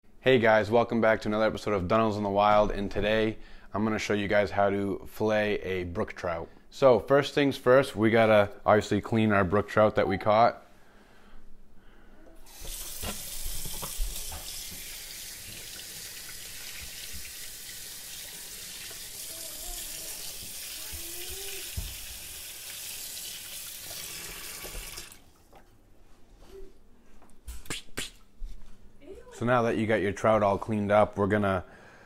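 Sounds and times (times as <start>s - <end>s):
faucet running into steel sink: 12.5s - 25.3s.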